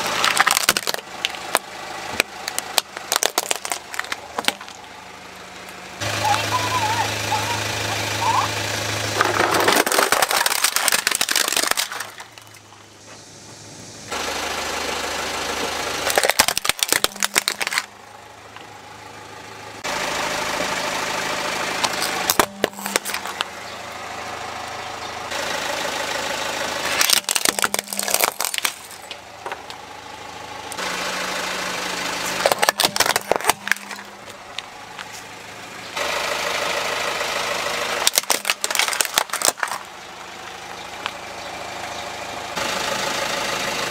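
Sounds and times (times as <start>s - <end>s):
plastic toys cracking under tyre: 0.0s - 4.8s, 9.2s - 12.7s, 16.0s - 17.9s, 21.8s - 23.5s, 26.9s - 29.8s, 32.3s - 35.1s, 38.0s - 39.9s
car running slowly: 0.0s - 43.9s.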